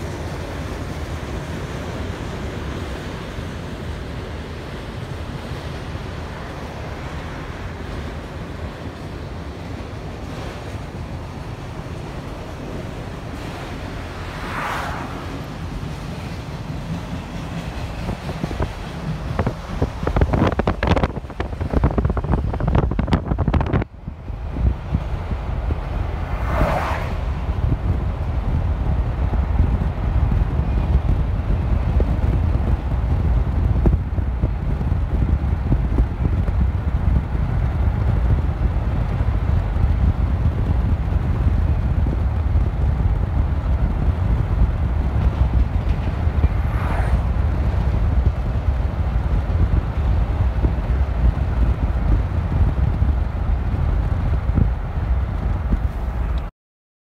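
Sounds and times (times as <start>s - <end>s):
car road noise: 0.0s - 56.5s
wind buffeting microphone: 0.0s - 56.5s.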